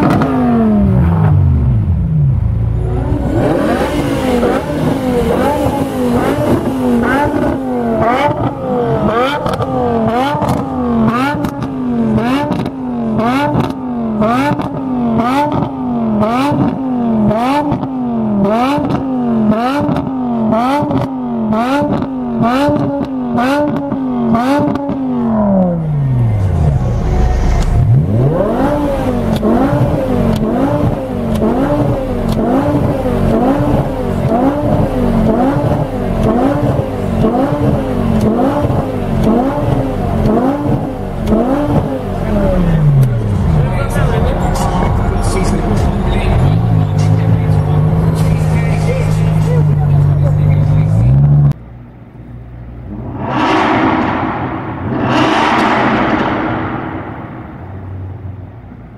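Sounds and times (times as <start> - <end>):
car engine revving: 0.0 - 51.6, 52.2 - 58.9
car engine idling: 25.1 - 58.9.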